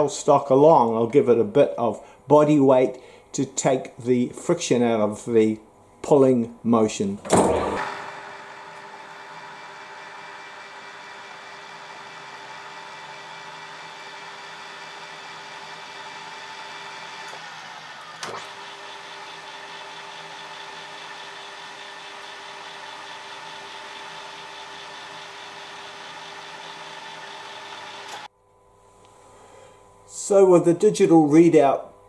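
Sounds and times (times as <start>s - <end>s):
metal lathe humming: 7.4s - 28.3s.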